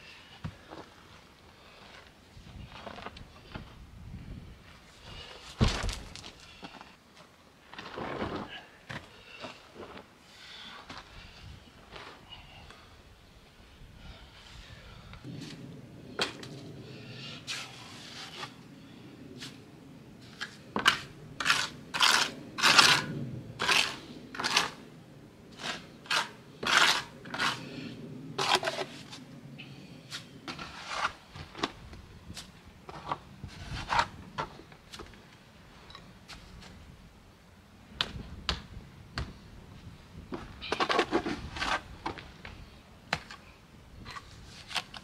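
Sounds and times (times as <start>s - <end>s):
trowel scraping mortar: 20.4s - 24.8s, 25.5s - 29.2s, 30.5s - 31.3s.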